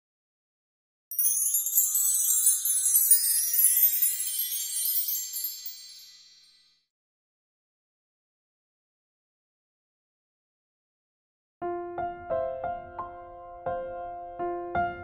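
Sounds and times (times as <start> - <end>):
tinkling chime effect: 1.1 - 6.9.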